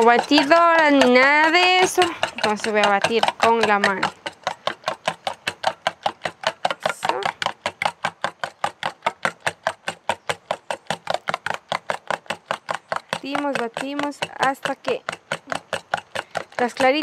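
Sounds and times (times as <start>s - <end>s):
whisk clicking against bowl: 0.0s - 17.0s.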